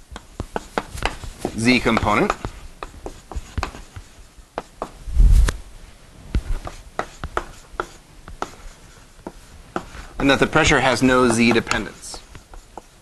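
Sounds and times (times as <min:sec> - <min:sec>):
chalk tapping and scraping: 0:00.0 - 0:05.0, 0:06.3 - 0:13.0.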